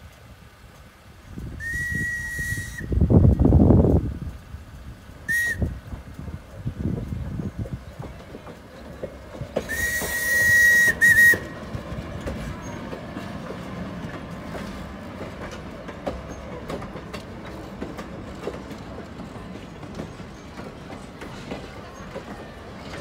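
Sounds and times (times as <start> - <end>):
train wheels rumbling: 0.0 - 23.0
wheels clicking over rail joints: 0.0 - 23.0
train whistle: 1.6 - 3.0, 5.3 - 5.8, 9.6 - 11.6.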